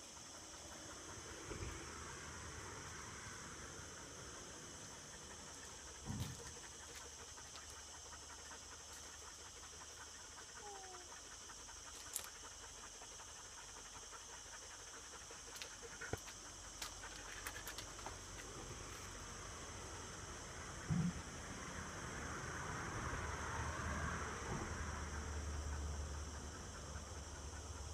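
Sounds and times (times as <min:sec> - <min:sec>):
small dog panting: 0:00.0 - 0:20.2, 0:24.4 - 0:27.9
soft low thump: 0:20.9 - 0:21.2.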